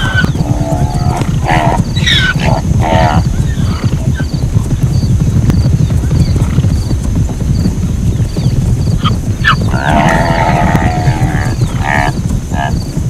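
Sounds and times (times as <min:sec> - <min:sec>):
steady low rumble: 0:00.0 - 0:13.0
zebra barking calls: 0:01.0 - 0:03.7.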